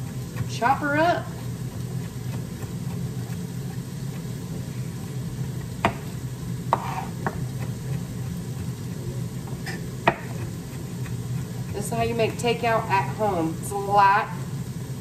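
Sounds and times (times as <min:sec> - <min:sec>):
air fryer humming: 0:00.0 - 0:15.0
knife mincing on wooden board: 0:01.4 - 0:04.4, 0:06.7 - 0:12.4.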